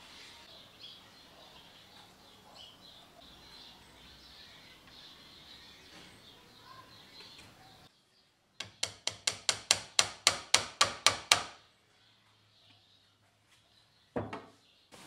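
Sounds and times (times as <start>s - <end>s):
faint background noise: 0.0s - 15.0s
hammer tapping metal: 8.6s - 11.5s.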